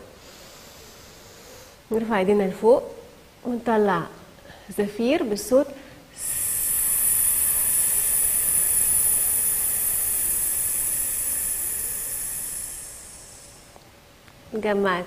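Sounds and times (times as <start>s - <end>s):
woman hissing exhalation: 6.1s - 13.8s.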